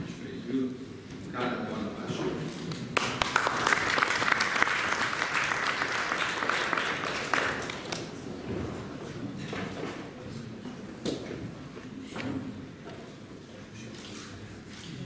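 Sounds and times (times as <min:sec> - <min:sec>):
audience applauding: 0:02.9 - 0:08.2.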